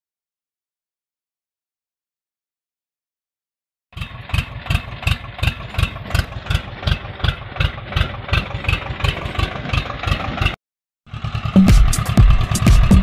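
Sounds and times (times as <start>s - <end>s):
tractor engine thumping: 4.0s - 13.0s.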